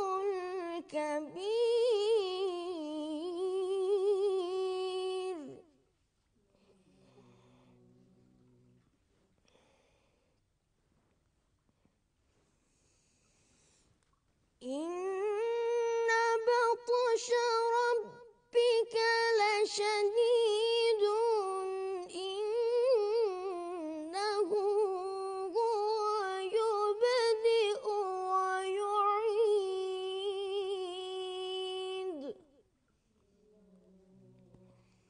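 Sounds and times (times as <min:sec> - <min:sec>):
boy reciting in melodic chant: 0:00.0 - 0:05.7, 0:14.6 - 0:32.6.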